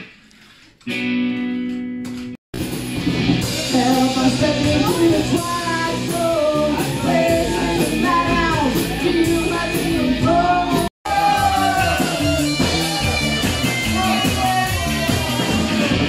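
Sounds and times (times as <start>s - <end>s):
rock band playing: 0.9s - 16.0s
person singing: 3.6s - 15.9s.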